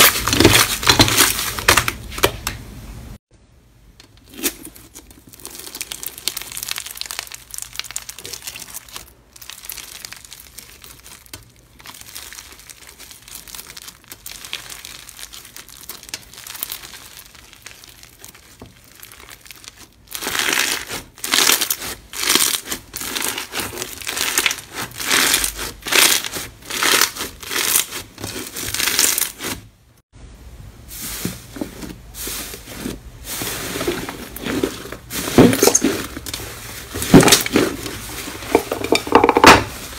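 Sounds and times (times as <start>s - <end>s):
crunchy slime crackling: 0.0s - 2.3s, 4.2s - 29.7s, 31.9s - 39.9s
soft slime squishing: 4.7s - 29.6s.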